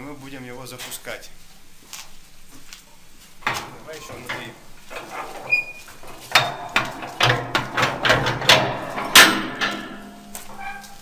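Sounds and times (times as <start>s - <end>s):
metal door clanks and rattles: 3.4s - 11.0s.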